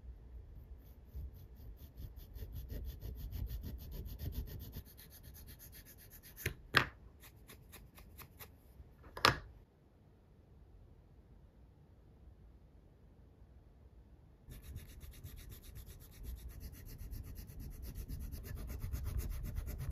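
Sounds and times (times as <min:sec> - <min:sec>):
needle file rasping on wire: 0:00.8 - 0:06.6, 0:14.5 - 0:19.9.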